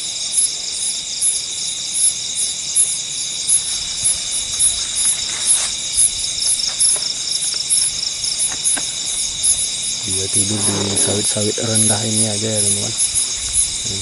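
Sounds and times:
night insects trilling: 0:00.0 - 0:14.0
faint rustles: 0:03.5 - 0:14.0.

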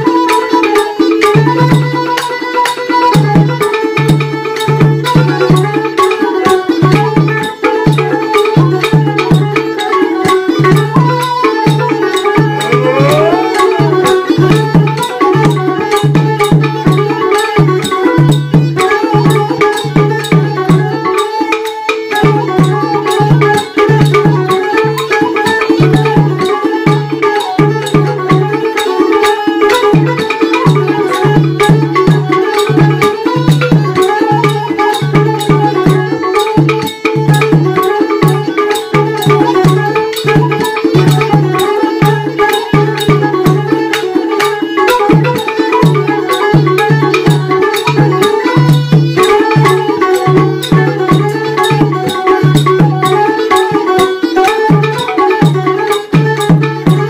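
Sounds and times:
bamboo flute melody: 0:00.0 - 0:57.0
drums beating fast pattern: 0:10.2 - 0:21.0, 0:44.8 - 0:57.0
plucked lute: 0:11.4 - 0:15.8.

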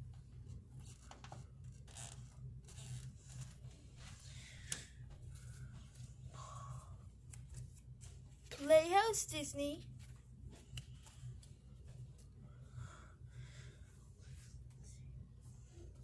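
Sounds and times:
low steady hum: 0:00.0 - 0:16.0
paper cards rustling: 0:07.2 - 0:08.7.

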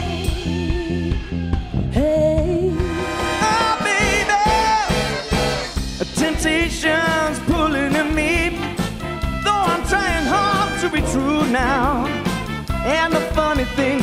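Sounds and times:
soul band playing: 0:00.0 - 0:14.0
singers holding long notes: 0:02.7 - 0:06.5.

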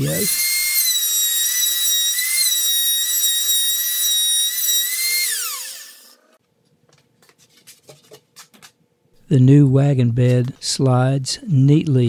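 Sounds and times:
router motor spinning down: 0:00.0 - 0:06.4
wood router whining: 0:00.0 - 0:06.4.

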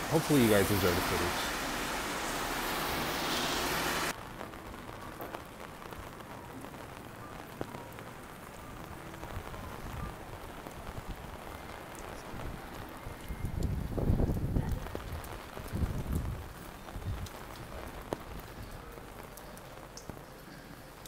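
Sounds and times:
loud even hiss: 0:00.0 - 0:04.1
light rain pattering: 0:00.0 - 0:21.0.

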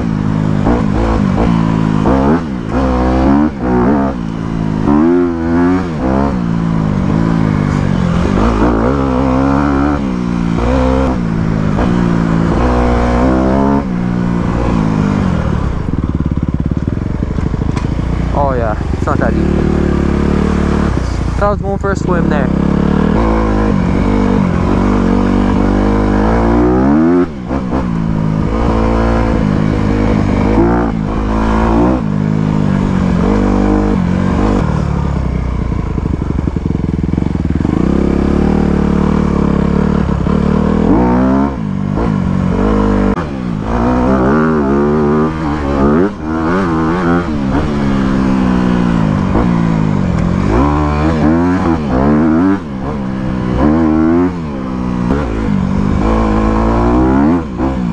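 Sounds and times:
dirt bike engine revving: 0:00.0 - 0:57.9.

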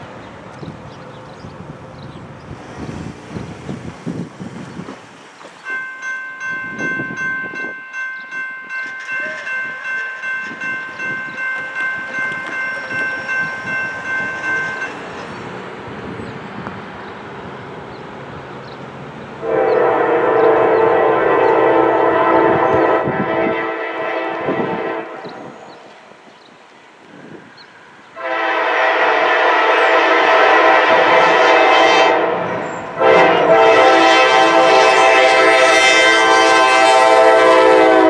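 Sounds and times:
crossing warning bell ringing: 0:05.6 - 0:15.6
locomotive air horn: 0:19.4 - 0:25.8, 0:28.2 - 0:38.0.

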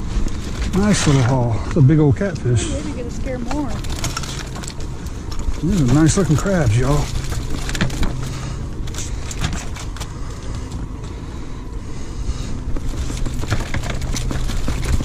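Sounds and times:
outboard motor idling: 0:00.7 - 0:15.0
crab trap rattling and knocking: 0:03.6 - 0:10.1, 0:12.7 - 0:15.0.

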